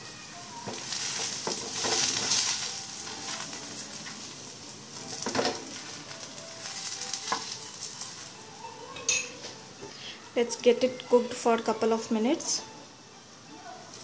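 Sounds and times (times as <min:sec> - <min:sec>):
ghee sizzling on a hot pan: 0:00.0 - 0:14.0
spoon scraping and tapping bread: 0:06.7 - 0:08.2.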